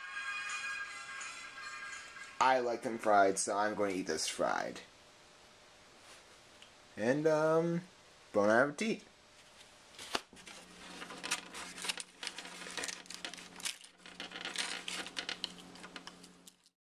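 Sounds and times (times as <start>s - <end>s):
eggshells rustling and clicking: 10.9s - 16.7s.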